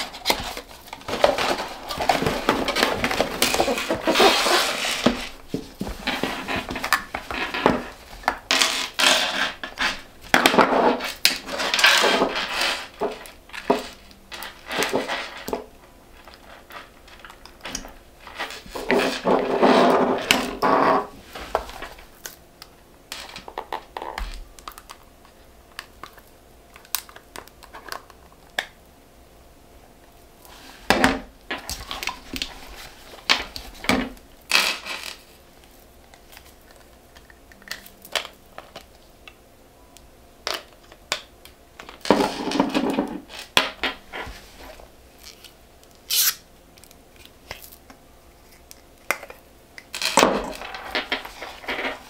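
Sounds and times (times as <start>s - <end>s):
packaging rustling: 0.0s - 17.5s.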